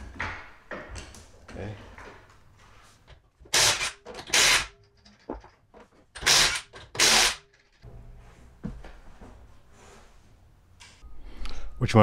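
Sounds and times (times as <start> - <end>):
impact wrench motor whirring: 3.5 - 4.7, 6.2 - 7.4
impact wrench hammering: 6.2 - 7.5.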